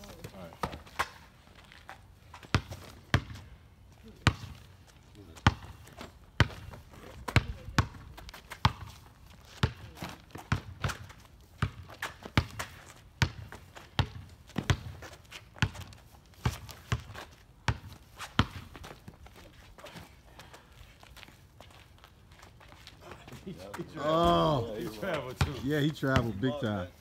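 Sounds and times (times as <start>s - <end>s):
basketball bouncing on asphalt: 0.0s - 19.3s, 25.3s - 26.5s.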